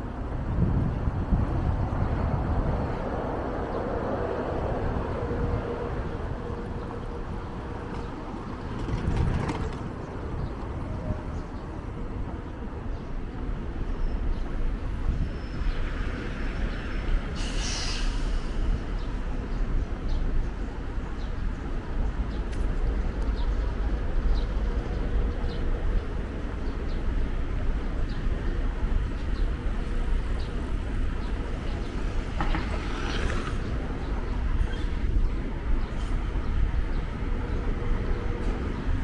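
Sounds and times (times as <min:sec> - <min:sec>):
traffic rumble: 0:00.0 - 0:39.0
short hiss: 0:17.4 - 0:18.6.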